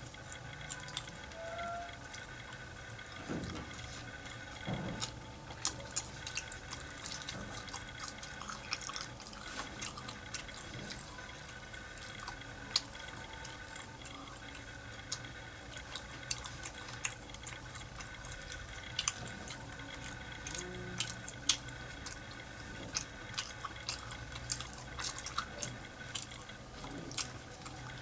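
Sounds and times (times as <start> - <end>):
close chewing with mouth clicks: 0.0 - 1.4, 2.1 - 28.0
faint steady hum: 0.0 - 28.0.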